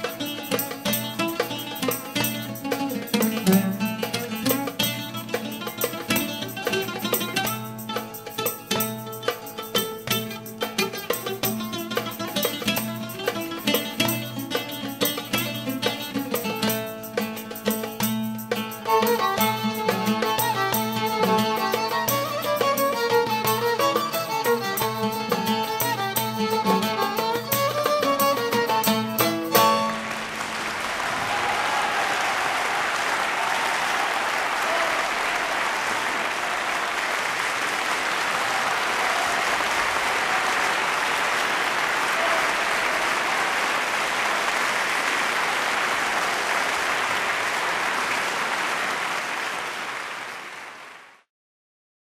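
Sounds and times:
folk song: 0.0s - 31.8s
audience applause: 29.6s - 51.3s.

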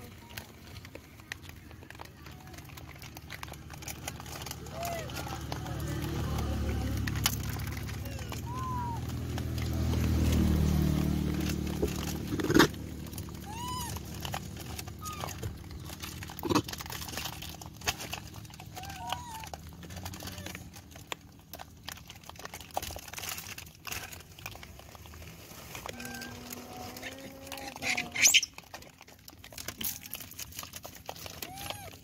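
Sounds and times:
rustling: 0.0s - 32.0s
stones crunching and clicking: 0.0s - 32.0s
monkey coo calls: 25.9s - 28.5s.

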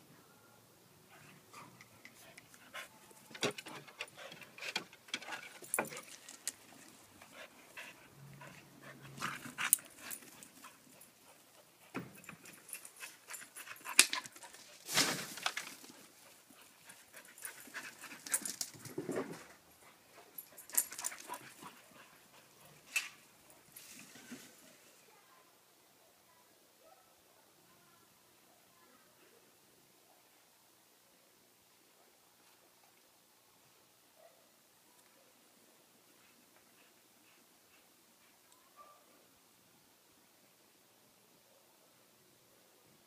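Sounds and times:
dogs panting: 1.1s - 14.7s, 16.0s - 18.6s, 19.7s - 23.5s.

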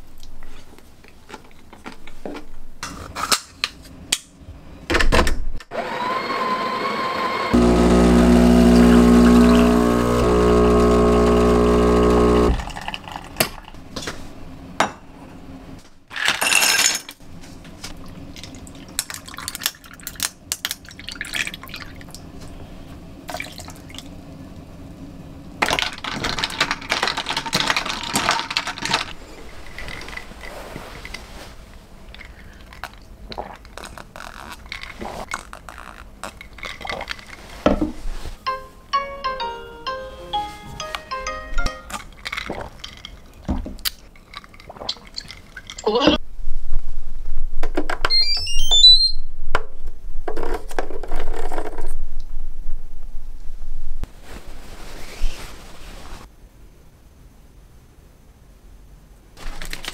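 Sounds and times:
espresso machine pump humming: 5.9s - 12.8s
espresso pouring over milk: 7.6s - 13.2s.

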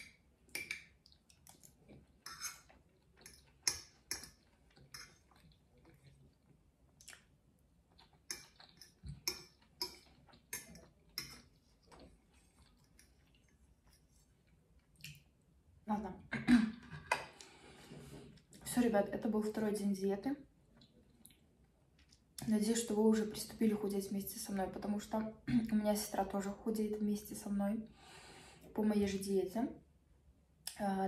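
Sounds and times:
fork scraping on plate: 2.2s - 4.3s.

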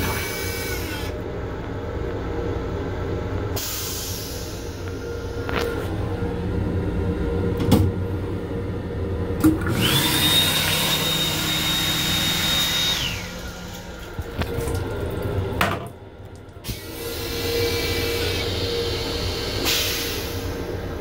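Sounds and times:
hand dryer blowing: 9.5s - 14.8s, 16.6s - 21.0s.

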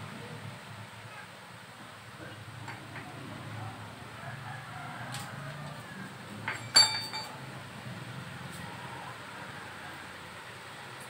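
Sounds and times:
angle grinder parts clinking: 6.5s - 7.4s.

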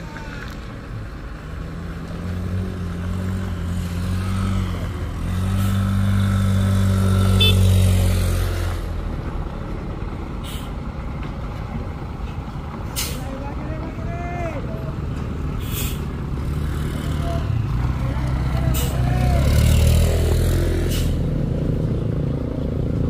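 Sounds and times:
truck diesel engine under load: 0.0s - 23.0s
short hiss: 15.6s - 16.1s.

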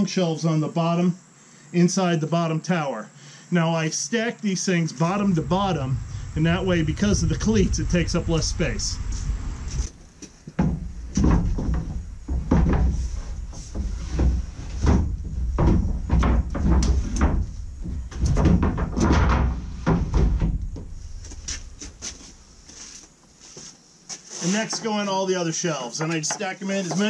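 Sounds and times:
boards scraping: 5.1s - 25.1s
wooden boards knocking and thudding: 10.4s - 22.4s, 26.0s - 27.0s.

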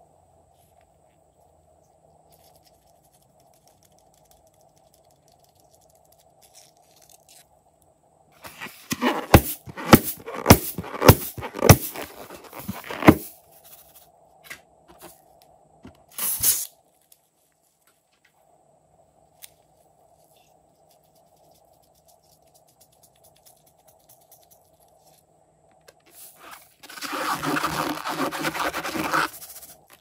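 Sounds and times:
rubber balloon squeezed: 8.4s - 13.2s, 26.4s - 29.6s
scissors snipping balloon: 8.6s - 13.2s.

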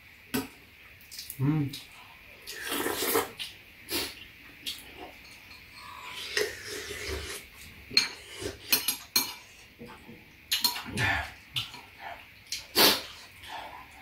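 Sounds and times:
spoons clinking against bowls: 5.2s - 5.8s, 8.0s - 9.5s.

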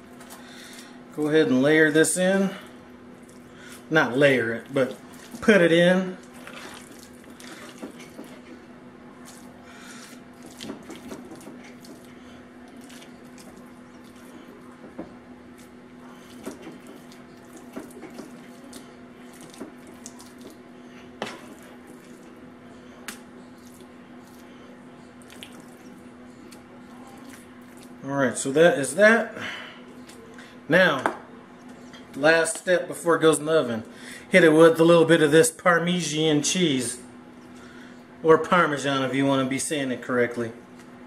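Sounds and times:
wet food squishing: 0.0s - 28.0s, 29.9s - 30.5s
steady low hum: 0.0s - 41.0s.

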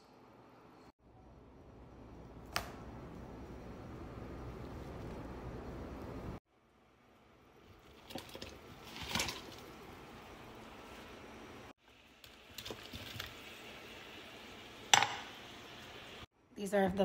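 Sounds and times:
water boiling and bubbling: 5.6s - 16.3s
food splashing into water: 7.8s - 9.9s.

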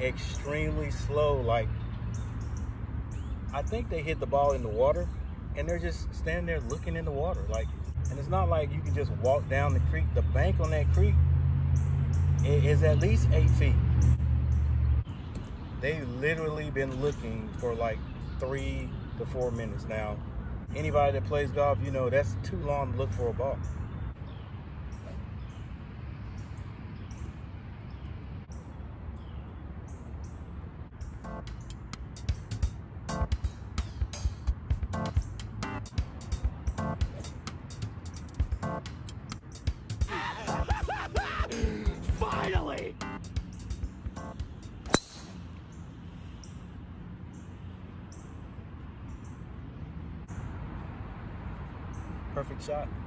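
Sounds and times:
bird chirping: 0.0s - 49.6s
outdoor background noise: 0.0s - 53.0s
golf club striking ball: 44.8s - 45.5s.

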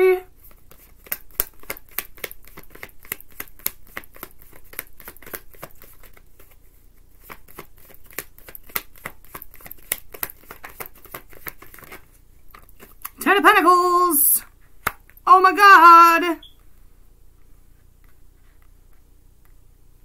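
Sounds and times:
cards being shuffled: 0.4s - 13.2s.

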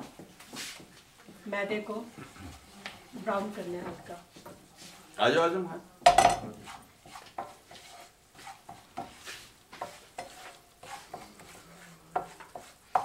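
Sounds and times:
food sizzling in butter: 3.1s - 13.0s
utensil scraping frying pan: 6.1s - 13.0s.

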